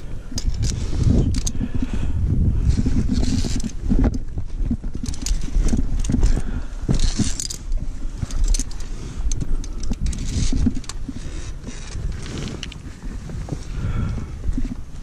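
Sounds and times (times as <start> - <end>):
carabiners clinking on steel cable: 0.3 - 1.8, 2.7 - 12.8.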